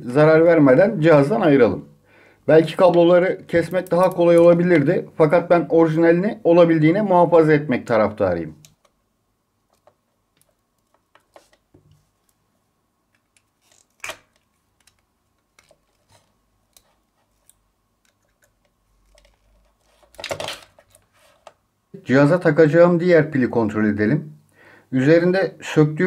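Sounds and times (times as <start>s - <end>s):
pliers clicking and scraping metal: 3.6s - 4.5s.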